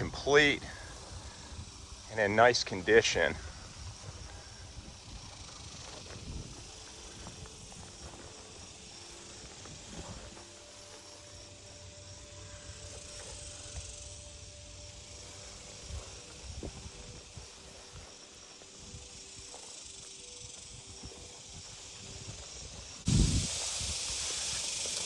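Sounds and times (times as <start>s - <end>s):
wind rumble on microphone: 0.0s - 8.9s, 15.5s - 18.1s, 20.4s - 24.8s
insects hissing in grass: 0.0s - 25.0s.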